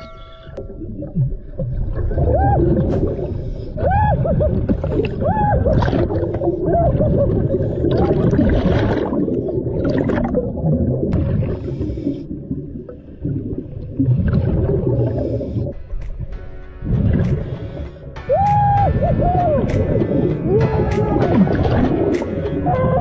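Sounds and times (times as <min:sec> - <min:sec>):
bubbling exhaled air: 0:00.8 - 0:15.9
diver breathing through regulator: 0:11.5 - 0:12.5, 0:14.8 - 0:16.0, 0:17.2 - 0:18.2.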